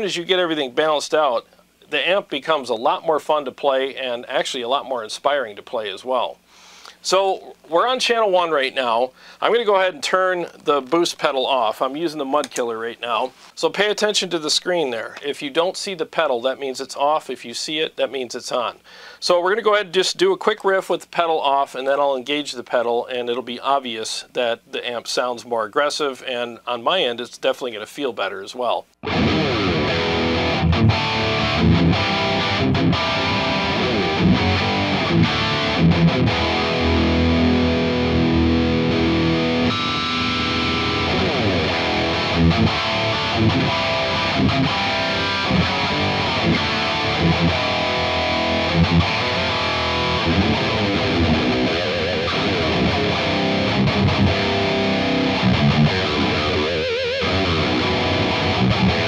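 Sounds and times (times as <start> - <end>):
distorted electric guitar riff: 29.0 - 59.0.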